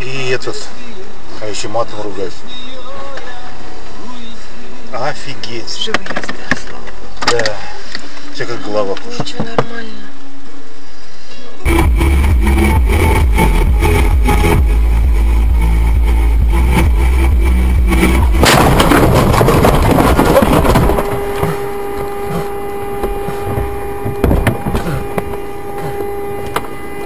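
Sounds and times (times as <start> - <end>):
steady tone: 10.3 - 27.0
crunching and scraping: 18.0 - 26.8
car crash impact: 18.3 - 25.4.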